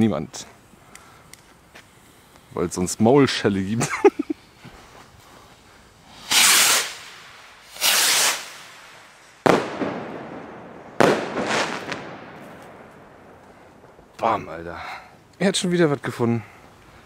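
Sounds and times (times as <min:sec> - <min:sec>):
firework hissing spurts: 0:00.5 - 0:10.3
firework bangs with echo: 0:09.4 - 0:13.8.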